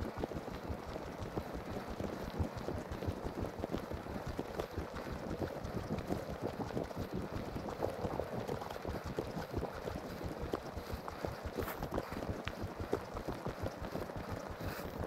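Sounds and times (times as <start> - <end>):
footsteps crunching on snow: 11.6 - 12.2.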